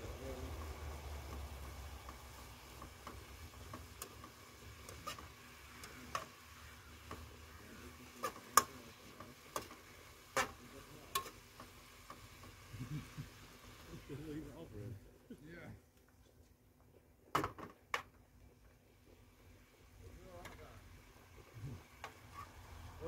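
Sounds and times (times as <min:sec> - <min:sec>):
faint sizzle: 0:00.0 - 0:17.1, 0:18.2 - 0:23.0
spatula scraping frying pan: 0:01.4 - 0:13.2.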